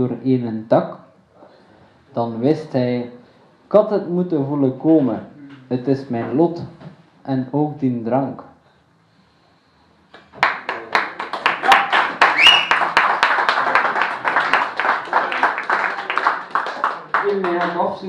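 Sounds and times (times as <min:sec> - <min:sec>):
audience applauding: 0:10.2 - 0:18.0.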